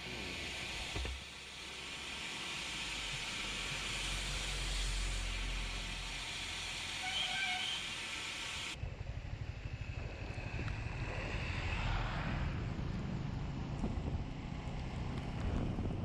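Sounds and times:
motorcycle engine rumble: 8.8s - 16.0s
wind buffeting microphone: 8.8s - 16.0s.

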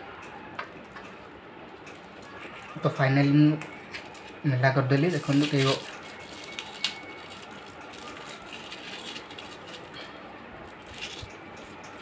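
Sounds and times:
foil-lined carton tearing and crinkling: 4.9s - 10.0s, 10.8s - 11.3s.

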